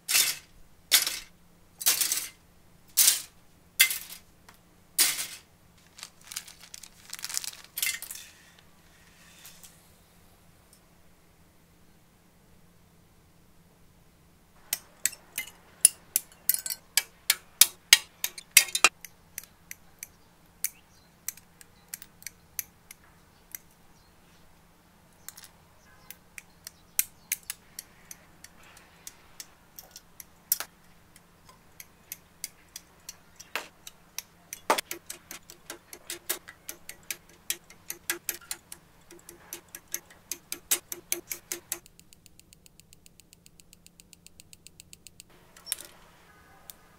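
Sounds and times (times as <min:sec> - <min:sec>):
plastic runners clicking: 0:26.7 - 0:46.0
side cutters snipping plastic: 0:32.1 - 0:41.9.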